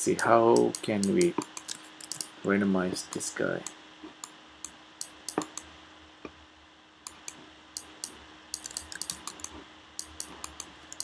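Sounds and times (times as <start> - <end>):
faint steady hum: 0.0 - 11.0
computer keyboard keys clicking: 0.6 - 2.3, 5.0 - 5.6, 7.1 - 11.0.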